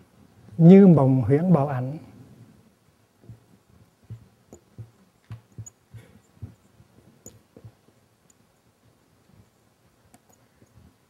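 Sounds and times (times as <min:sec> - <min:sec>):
marker pen on whiteboard: 0:03.2 - 0:08.7.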